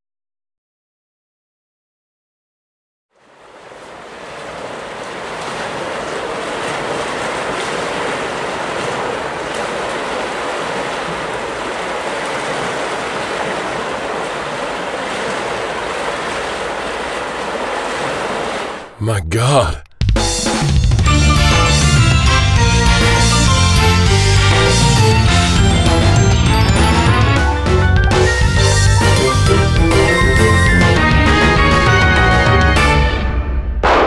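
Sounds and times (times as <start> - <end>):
steady rushing noise: 3.2 - 18.9.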